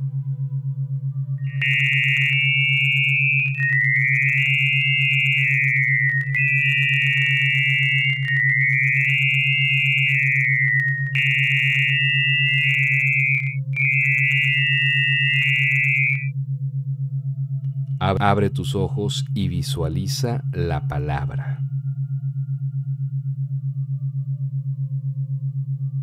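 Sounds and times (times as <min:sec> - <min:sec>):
steady low tone: 0:00.0 - 0:26.0
high shifting synthetic tone: 0:01.6 - 0:16.3.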